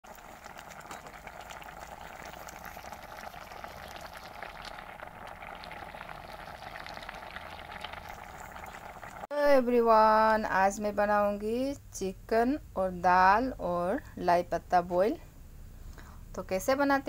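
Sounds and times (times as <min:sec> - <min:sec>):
broth boiling and bubbling: 0:00.0 - 0:09.3.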